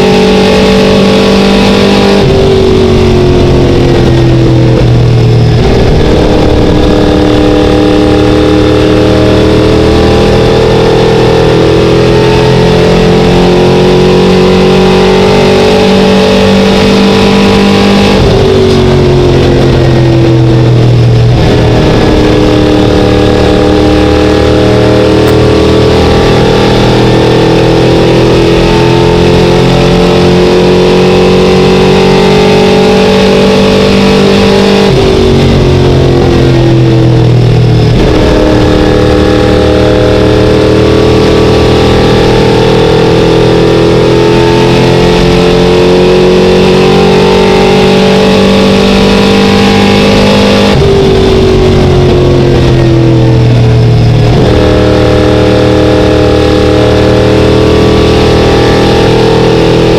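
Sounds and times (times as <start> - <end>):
race car engine: 0.0 - 59.9.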